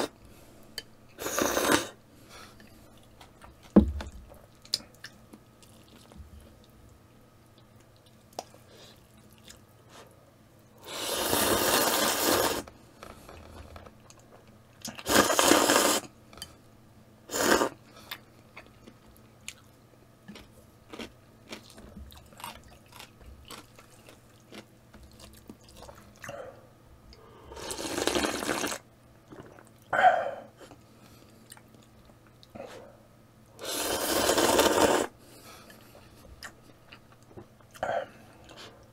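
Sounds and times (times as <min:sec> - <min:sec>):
noodles being slurped: 0:01.2 - 0:01.9, 0:10.9 - 0:12.7, 0:14.9 - 0:16.1, 0:27.6 - 0:29.7, 0:33.6 - 0:35.1
chewing: 0:04.6 - 0:06.8, 0:07.6 - 0:09.7, 0:20.3 - 0:26.4.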